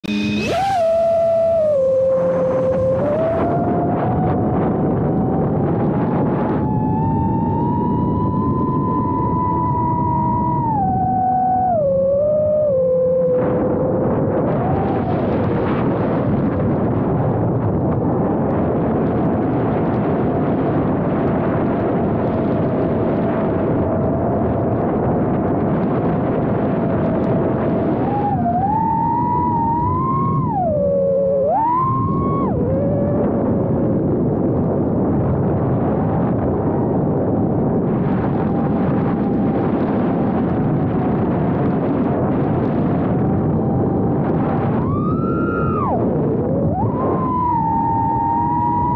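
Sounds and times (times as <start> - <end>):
steady rushing noise: 0.0 - 48.9
quadcopter motors whining: 0.1 - 4.3.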